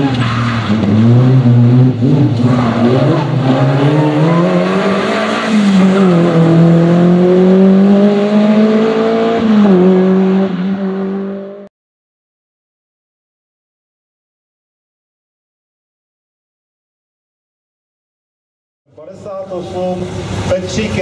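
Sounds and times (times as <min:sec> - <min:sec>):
rally car engine revving: 0:00.0 - 0:11.7.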